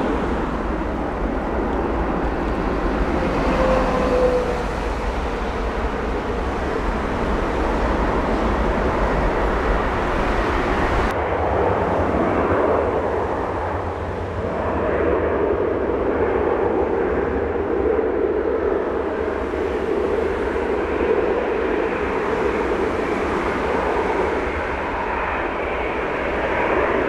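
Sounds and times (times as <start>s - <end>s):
jet engines at takeoff: 0.0s - 27.0s
regional jet running along runway: 0.0s - 27.0s.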